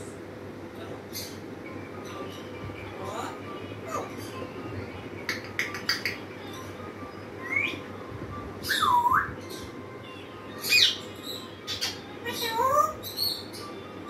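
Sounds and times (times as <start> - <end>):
parrot whistling: 8.6 - 9.3.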